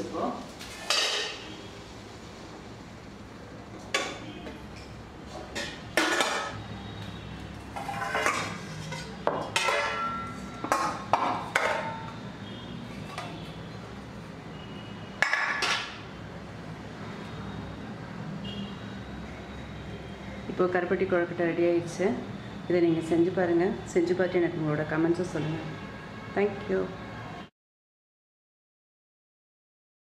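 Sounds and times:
steel cookware clanking: 0.8s - 1.4s, 5.5s - 6.6s, 7.7s - 12.1s.

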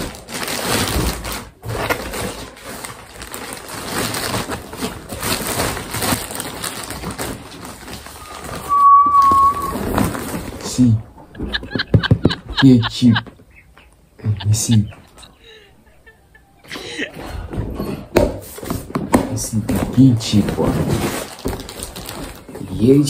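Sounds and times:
plastic mailer bag crinkling: 0.0s - 8.7s, 9.7s - 10.6s, 20.3s - 23.0s
high whistle-like tone: 8.2s - 10.2s.

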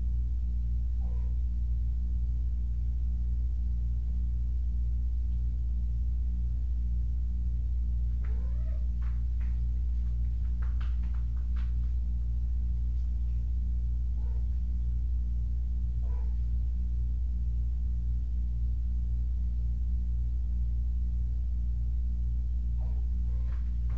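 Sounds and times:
steady low hum: 0.0s - 23.9s
cat meowing: 8.2s - 8.9s.

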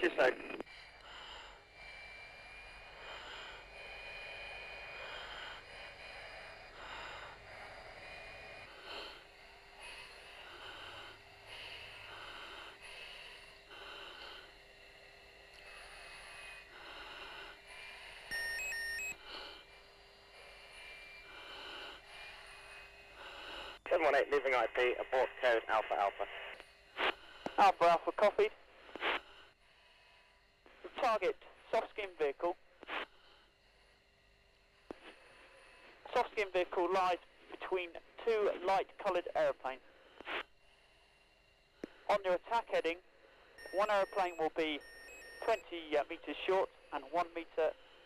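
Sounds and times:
faint steady tone: 0.0s - 48.0s
breathing through oxygen mask: 0.6s - 23.9s
electronic beep: 18.3s - 19.2s, 43.6s - 45.6s.

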